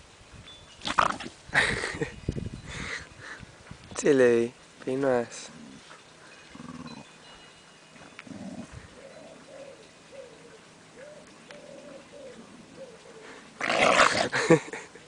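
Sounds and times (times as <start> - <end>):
dogs play growling: 5.5 - 7.1, 8.1 - 9.3, 13.6 - 14.6.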